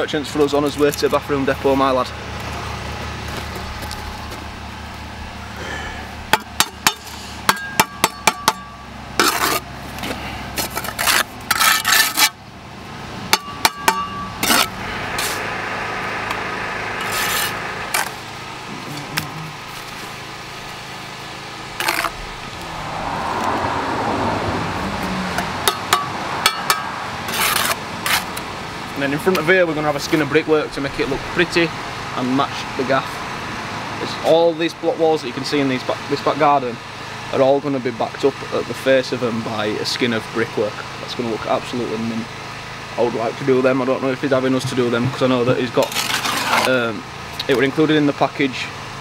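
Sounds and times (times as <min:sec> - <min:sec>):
trowel scraping mortar: 0:09.2 - 0:09.7, 0:10.6 - 0:12.4, 0:13.7 - 0:15.5, 0:17.0 - 0:18.2, 0:21.8 - 0:22.3, 0:27.3 - 0:28.4, 0:45.0 - 0:46.9.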